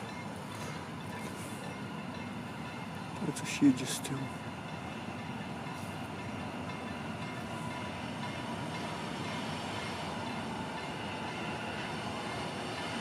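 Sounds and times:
train rail rumble: 0.0 - 13.0.

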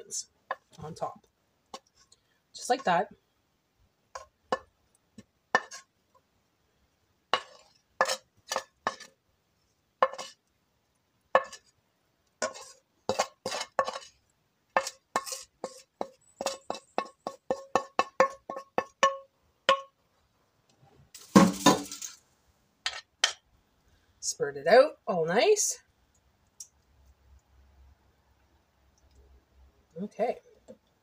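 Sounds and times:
metal spoon tapping a frying pan: 5.6 - 5.8, 10.0 - 10.3, 14.8 - 20.0, 22.9 - 23.4.

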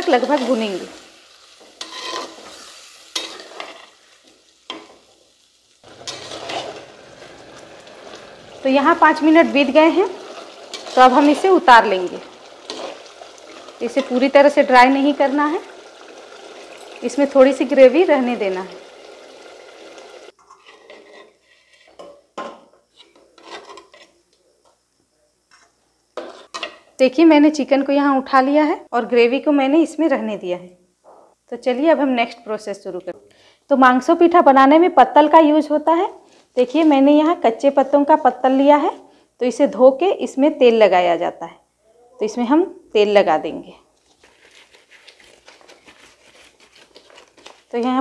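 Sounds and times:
food sizzling in oil: 0.0 - 21.4
soft sizzle: 0.0 - 48.0
spatula scraping in pot: 1.4 - 5.1, 5.8 - 9.2, 9.9 - 14.6, 20.3 - 22.1, 22.9 - 24.2, 25.5 - 26.8.

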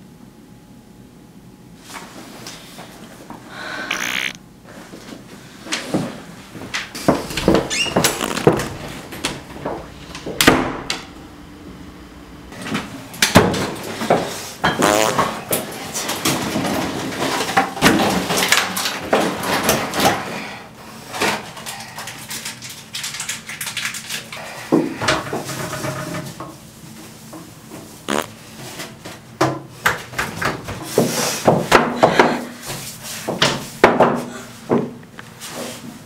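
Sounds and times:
objects clattering and knocking: 12.6 - 20.4, 21.1 - 26.6.

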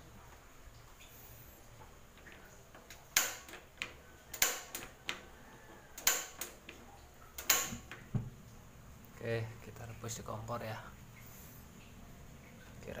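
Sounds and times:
gas burner catching: 3.1 - 3.6, 4.3 - 5.2, 6.0 - 6.6, 7.4 - 8.3
gas stove igniter clicking: 3.1 - 3.6, 4.3 - 5.2, 6.0 - 6.6, 7.4 - 8.0.

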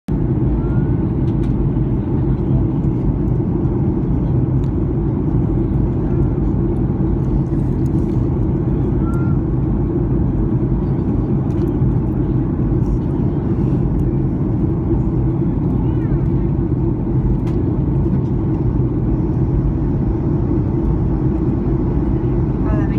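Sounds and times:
airliner cabin rumble: 0.1 - 22.9.

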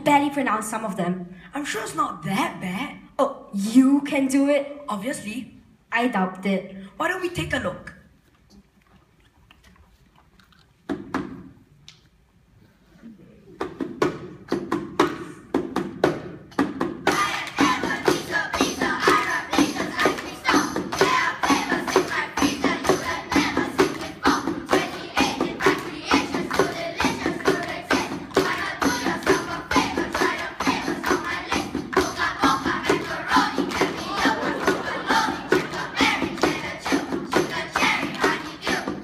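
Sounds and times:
hand percussion beat: 13.6 - 39.0
children chanting in unison: 17.1 - 39.0.

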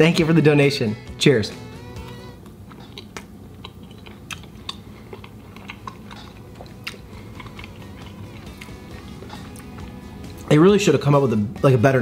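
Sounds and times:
person chewing food: 1.8 - 10.5
small crunches and mouth clicks: 2.0 - 10.5.

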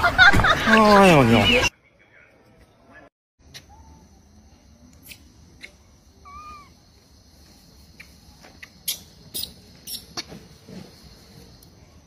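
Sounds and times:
macaque squeaky call: 6.2 - 6.8, 8.0 - 10.2.

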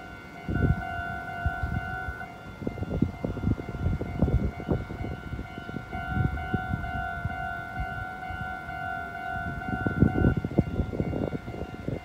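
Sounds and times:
level crossing bell ringing: 0.0 - 12.0.

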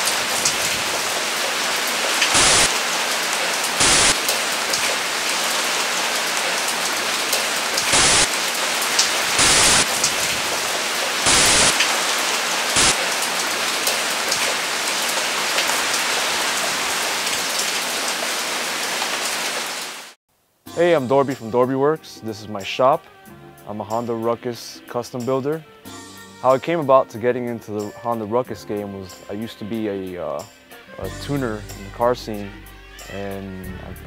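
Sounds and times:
bursts of static noise: 0.0 - 13.9
steady rain-like hiss: 0.0 - 21.0.

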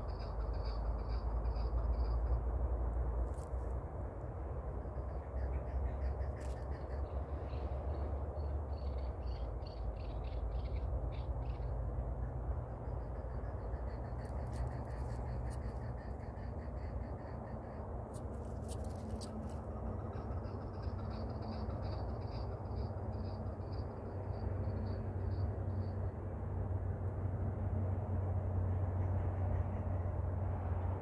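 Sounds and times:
steady low rumble: 0.0 - 31.0.

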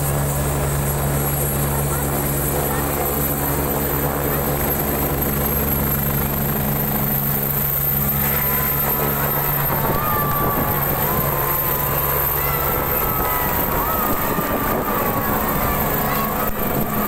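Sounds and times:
helicopter turbine whine and rotor hum: 0.0 - 17.0.

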